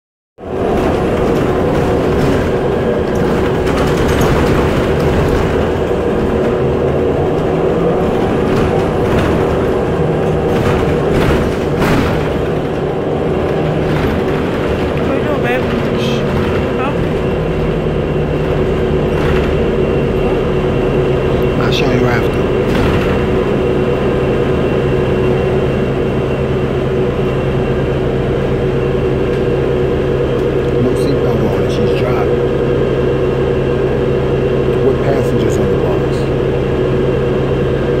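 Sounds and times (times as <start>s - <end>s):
bus engine and road noise: 0.4s - 38.0s
rattles: 0.5s - 25.6s.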